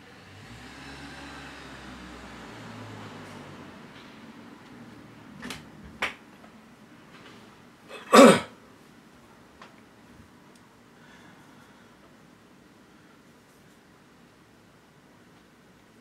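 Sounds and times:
person coughing: 7.9 - 8.5.

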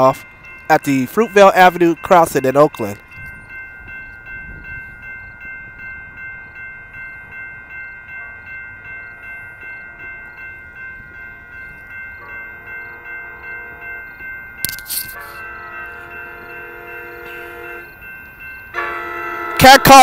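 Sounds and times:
crossing warning bell ringing: 0.0 - 20.0
train horn: 15.1 - 17.9, 18.7 - 20.0.

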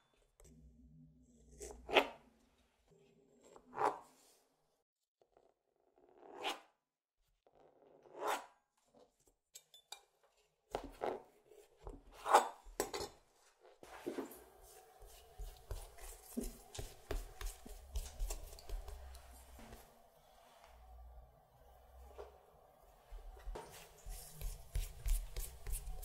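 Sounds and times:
handling ruler and dough: 7.3 - 21.0, 23.1 - 26.0
pastry brush on dough: 13.8 - 20.6, 23.4 - 26.0
knife cutting dough: 14.7 - 19.7, 23.4 - 26.0.

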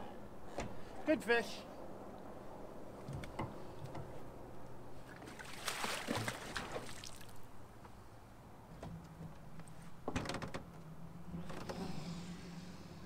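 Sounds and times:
water sloshing and splashing: 5.0 - 7.5.

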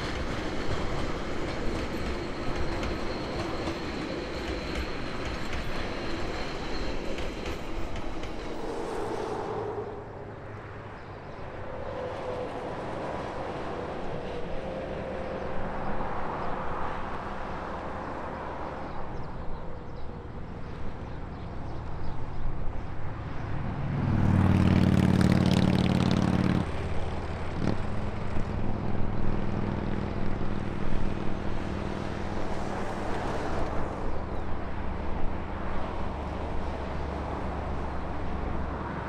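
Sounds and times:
road traffic passing: 8.0 - 39.0.

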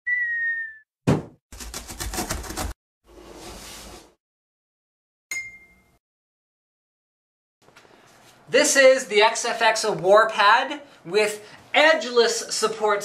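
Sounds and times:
cardboard box landing thump: 1.1 - 1.4.

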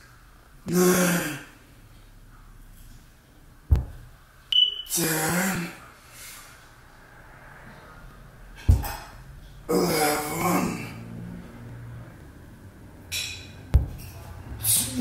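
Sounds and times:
dumbbell thud on floor: 3.7 - 4.1, 8.6 - 9.0, 13.7 - 14.0
short high beep: 4.5 - 4.9.

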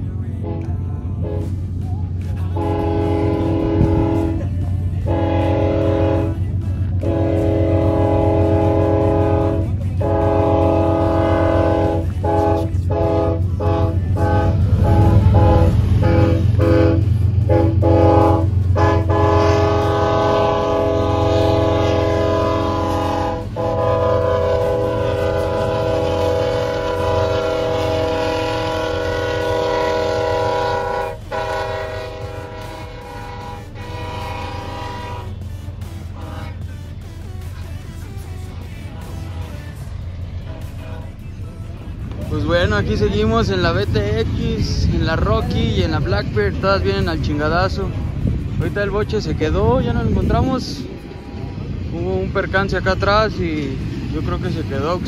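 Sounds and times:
low rumble: 0.0 - 55.0
locomotive air horn: 0.4 - 1.6, 2.5 - 37.0, 38.9 - 41.4.

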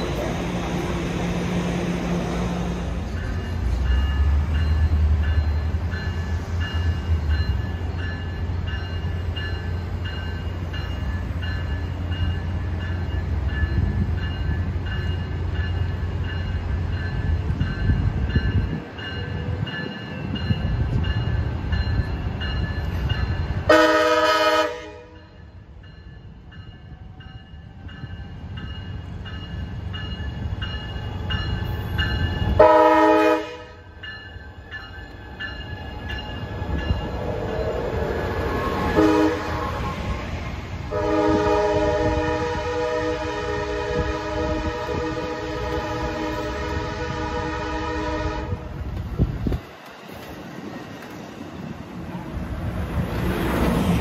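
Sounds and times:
locomotive engine rumbling: 0.0 - 54.0
train horn blasts: 23.6 - 25.3, 32.5 - 33.9, 38.7 - 40.2, 40.9 - 48.8.

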